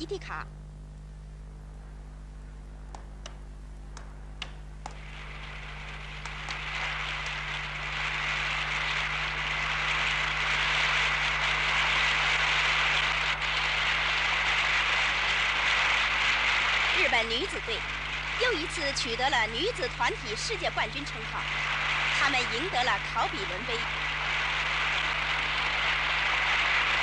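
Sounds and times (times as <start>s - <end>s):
steady low hum: 0.0s - 27.0s
table tennis ball clicks: 2.9s - 5.0s
large crowd applauding: 4.9s - 27.0s.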